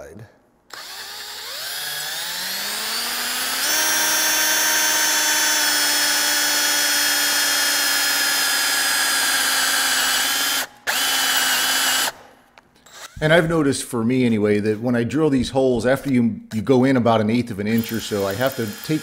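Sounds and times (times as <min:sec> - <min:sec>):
cordless drill whining under load: 0:00.7 - 0:13.2, 0:17.7 - 0:19.0.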